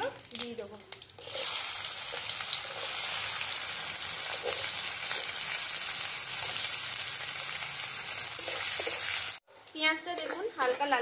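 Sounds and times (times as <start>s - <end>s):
onions sizzling in hot oil: 0.0s - 11.0s
metal spatula stirring: 4.2s - 5.5s, 6.3s - 11.0s.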